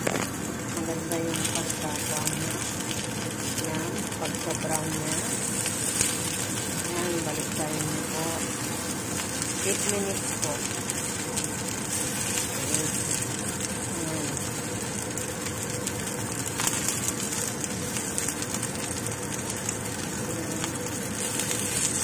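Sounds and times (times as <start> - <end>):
dumplings sizzling in oil: 0.0 - 22.0.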